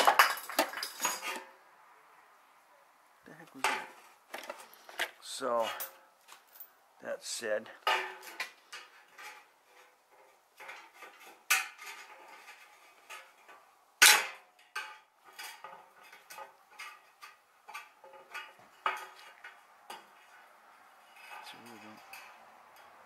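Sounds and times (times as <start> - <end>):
hand tools clinking on metal: 0.0 - 1.5, 3.5 - 6.7, 21.0 - 23.0.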